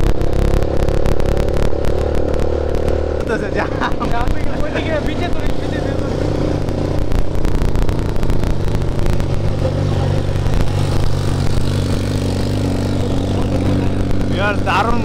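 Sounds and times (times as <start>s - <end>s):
quad bike engine running: 0.0s - 15.0s.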